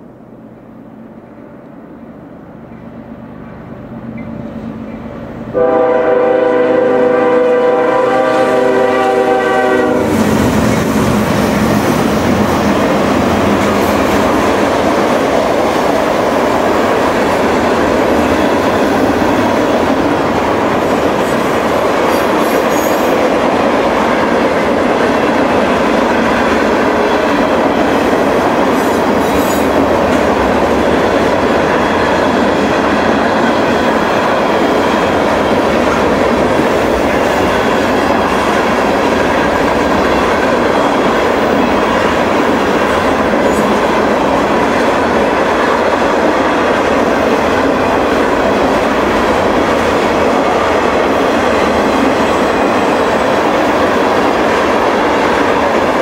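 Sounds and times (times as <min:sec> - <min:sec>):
train rumble: 0:00.0 - 0:56.0
train horn blast: 0:05.5 - 0:10.3.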